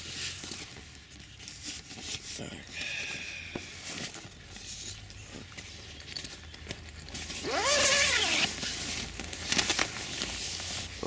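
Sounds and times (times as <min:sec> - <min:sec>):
tent zipper pulled: 0:07.2 - 0:08.8.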